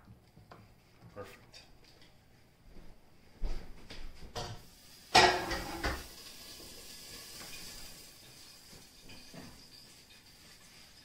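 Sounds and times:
kitchenware handling noise: 0:04.4 - 0:06.1, 0:09.0 - 0:10.2
kitchenware knocking and ringing: 0:04.4 - 0:06.1, 0:08.7 - 0:10.3.

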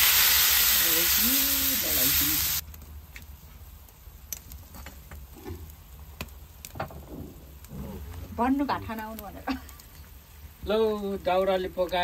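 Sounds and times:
steam hissing off wok: 0:00.0 - 0:02.6
crackling wood fire: 0:00.0 - 0:12.0
chicken boiling pops: 0:01.2 - 0:07.8, 0:08.9 - 0:12.0.

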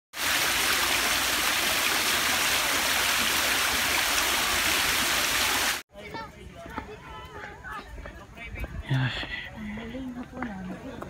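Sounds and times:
fountain water splashing: 0:00.2 - 0:05.8.

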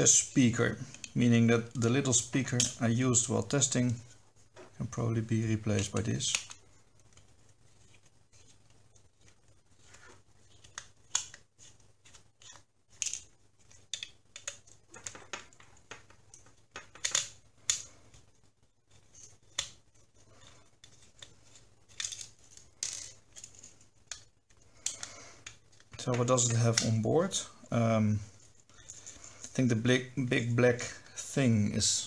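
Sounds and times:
plastic parts clicking and scraping: 0:05.7 - 0:18.3, 0:18.9 - 0:26.9.

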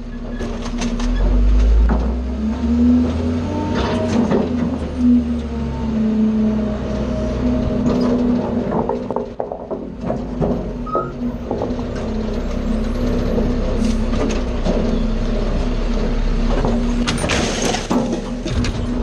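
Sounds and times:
truck engine rumble: 0:00.0 - 0:19.0
metal clanks and knocks: 0:00.2 - 0:02.4, 0:07.6 - 0:19.0.

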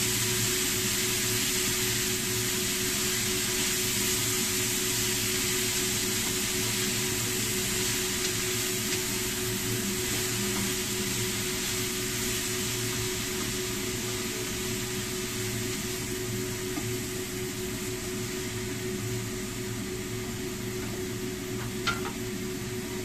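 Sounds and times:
steady hum: 0:00.0 - 0:23.0
vegetables frying in pan: 0:00.0 - 0:23.0.

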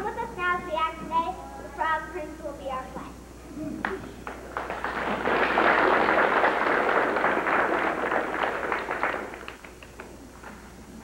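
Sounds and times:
audience applauding: 0:04.2 - 0:10.2.

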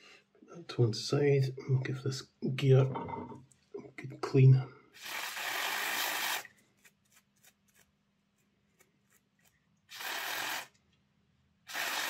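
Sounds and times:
aerosol spray hiss: 0:05.0 - 0:06.5, 0:09.9 - 0:10.7, 0:11.7 - 0:12.0.

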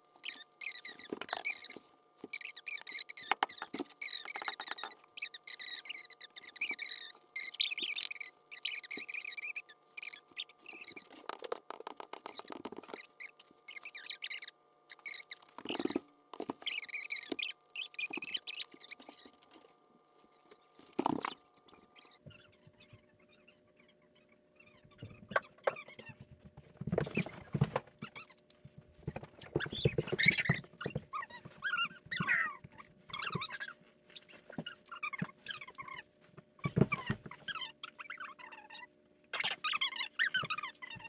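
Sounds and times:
faint steady hum: 0:00.0 - 0:41.0
sped-up chipmunk-like voices: 0:12.3 - 0:15.4, 0:29.4 - 0:33.8, 0:37.0 - 0:41.0.

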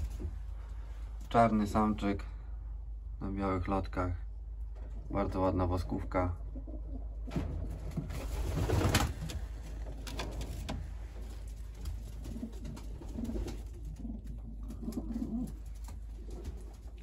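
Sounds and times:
pigeons cooing: 0:06.4 - 0:07.2, 0:11.8 - 0:17.0.

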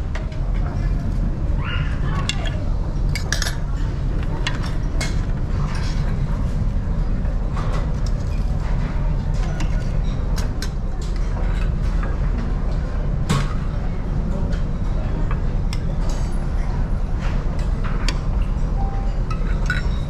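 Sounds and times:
tongs and dishes clinking: 0:19.3 - 0:20.0.

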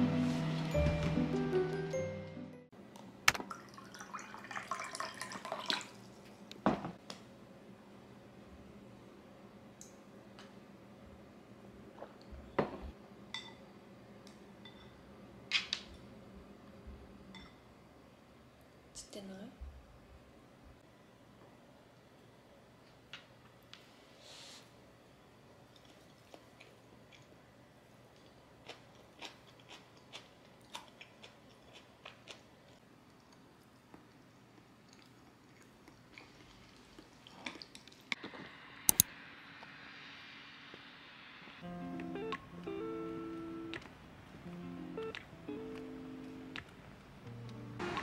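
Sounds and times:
room hiss: 0:23.6 - 0:25.6, 0:37.9 - 0:48.0
person chewing: 0:28.1 - 0:38.1.

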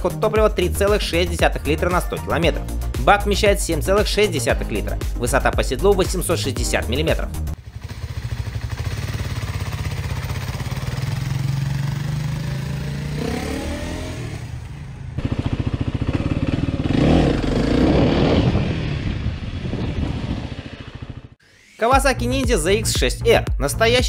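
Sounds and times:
motorcycle engine revving: 0:07.5 - 0:21.8.

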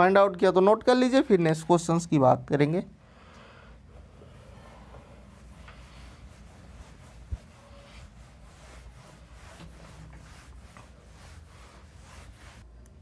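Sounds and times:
cloth rubbing on whiteboard: 0:04.1 - 0:12.7.

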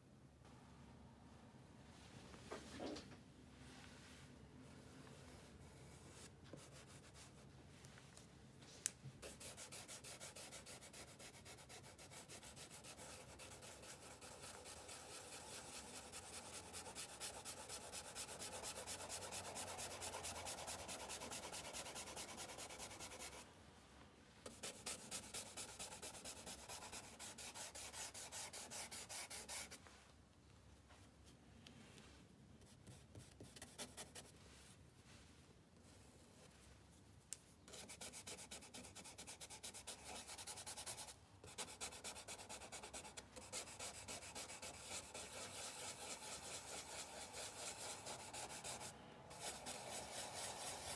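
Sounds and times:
brush scrubbing on paper: 0:09.2 - 0:23.4, 0:24.5 - 0:29.8, 0:37.7 - 0:50.9.

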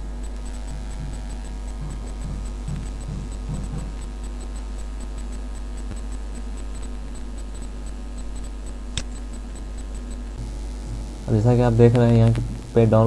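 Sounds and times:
low electrical hum: 0:00.0 - 0:13.0
sharp click: 0:00.3 - 0:10.4
recording hiss: 0:10.2 - 0:13.0.

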